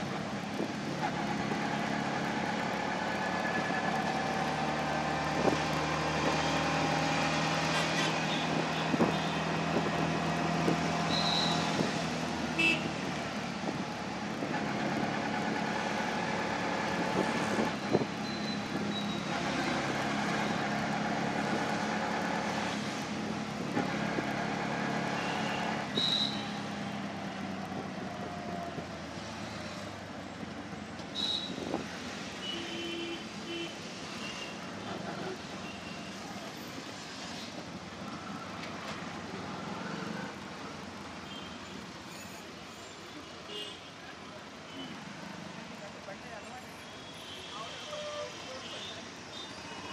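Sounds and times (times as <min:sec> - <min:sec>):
auto-rickshaw engine running: 0:00.0 - 0:30.9.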